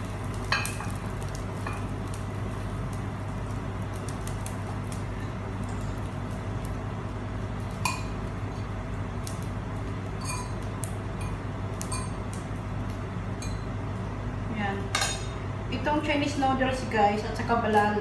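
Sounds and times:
metal fork clinking on dishes: 0:10.2 - 0:10.6.

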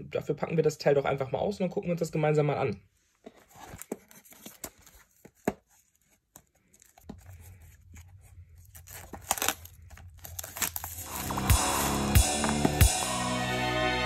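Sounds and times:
shrink wrap crackling and ripping: 0:06.6 - 0:12.8.

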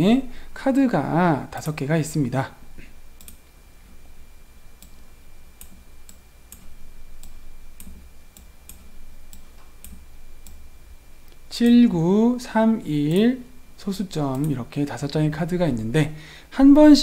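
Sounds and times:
faint high-pitched whine: 0:00.0 - 0:17.0
computer mouse clicks: 0:01.6 - 0:01.8, 0:03.2 - 0:03.5, 0:04.8 - 0:05.0, 0:05.6 - 0:10.6, 0:14.3 - 0:14.6.

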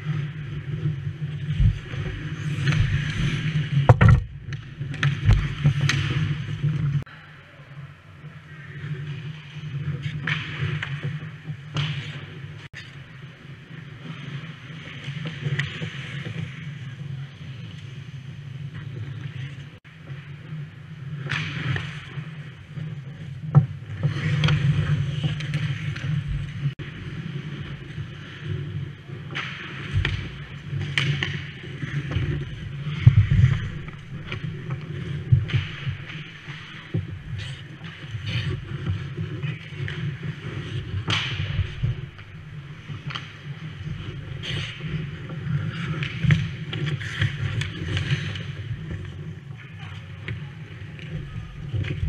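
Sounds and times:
skate blades scraping ice: 0:00.0 - 0:07.0, 0:08.6 - 0:52.0
stick knocking puck: 0:03.8 - 0:06.2.

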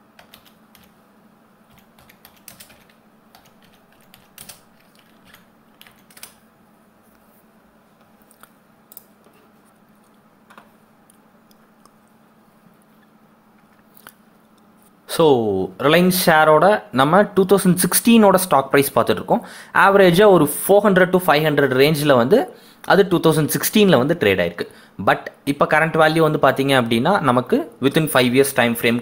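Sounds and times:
steady low hum: 0:00.0 - 0:29.0
keyboard typing: 0:00.2 - 0:01.0, 0:01.7 - 0:06.4.

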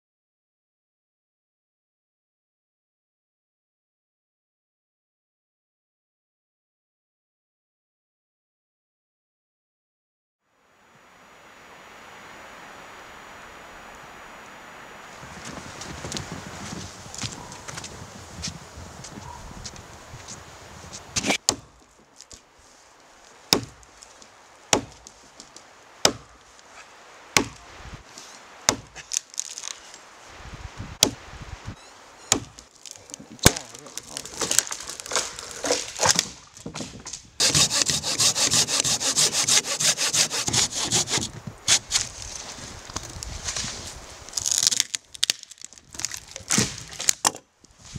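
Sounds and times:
axe chopping wood: 0:21.2 - 0:22.3, 0:23.5 - 0:24.0, 0:24.7 - 0:25.2, 0:26.0 - 0:26.4, 0:27.4 - 0:27.7, 0:28.6 - 0:29.7, 0:31.0 - 0:31.2, 0:32.3 - 0:42.0, 0:44.6 - 0:47.4
hand saw cutting wood: 0:33.4 - 0:36.3, 0:37.4 - 0:42.1.

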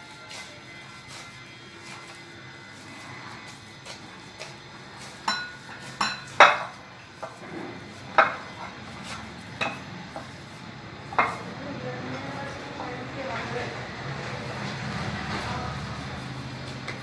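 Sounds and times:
glass bowl clinking: 0:05.2 - 0:06.8, 0:09.6 - 0:09.8.

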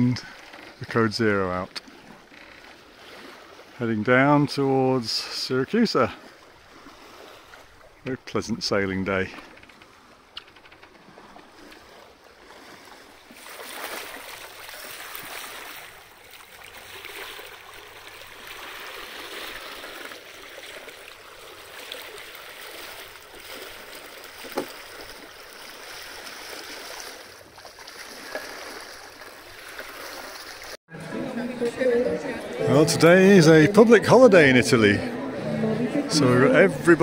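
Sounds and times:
water rushing along a hull: 0:00.0 - 0:37.0.

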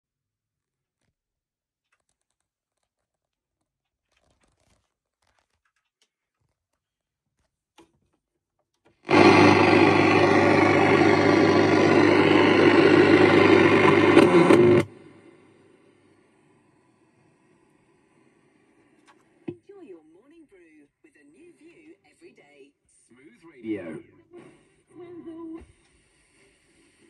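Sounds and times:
radio static hiss and hum: 0:09.1 - 0:15.0.

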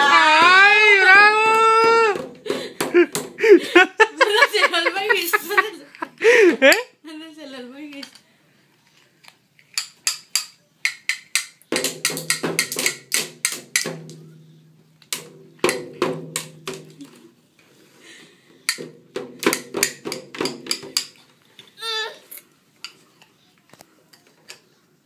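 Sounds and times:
toy drum beaten with sticks: 0:10.1 - 0:14.5, 0:15.1 - 0:16.9, 0:18.7 - 0:21.2.

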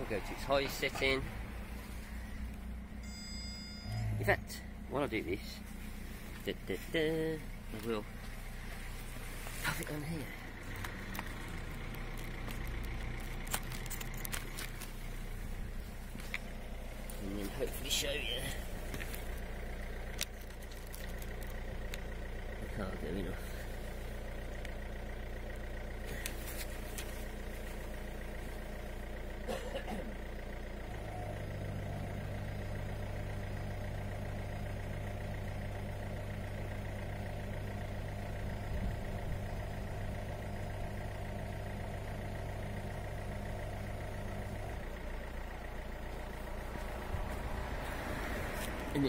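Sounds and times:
car engine idling: 0:00.0 - 0:49.0.

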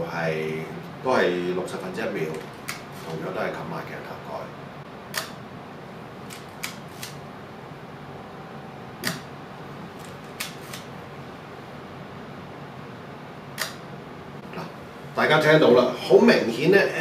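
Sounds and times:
faint room hum: 0:00.0 - 0:17.0
camera shutter clicks: 0:06.3 - 0:07.2, 0:10.0 - 0:10.9.

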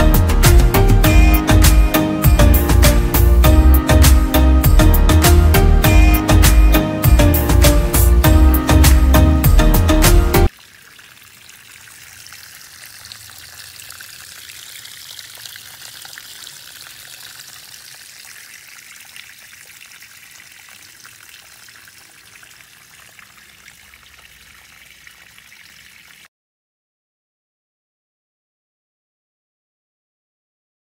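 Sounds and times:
running water trickling: 0:10.4 - 0:26.3.

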